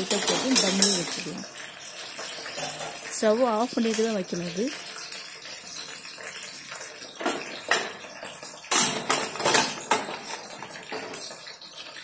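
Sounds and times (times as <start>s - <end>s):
pot lid clattering and scraping: 2.2s - 3.1s, 7.1s - 11.5s.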